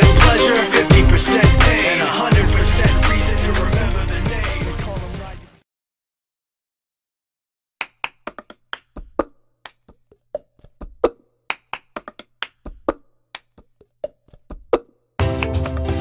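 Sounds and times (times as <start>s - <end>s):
hand claps: 7.8s - 10.0s, 10.8s - 13.7s.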